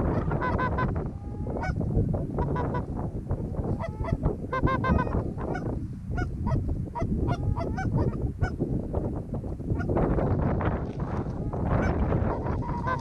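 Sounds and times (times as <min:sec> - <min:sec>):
geese honking and clucking: 0:00.0 - 0:01.8, 0:02.4 - 0:02.9, 0:03.7 - 0:08.6, 0:11.0 - 0:13.0
steady low rumble: 0:00.0 - 0:13.0.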